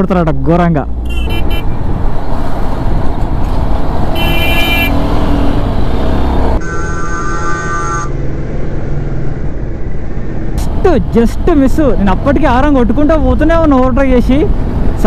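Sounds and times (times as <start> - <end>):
wind and road noise: 0.0 - 15.0
motorcycle horn blasts: 1.1 - 1.7, 4.2 - 5.0.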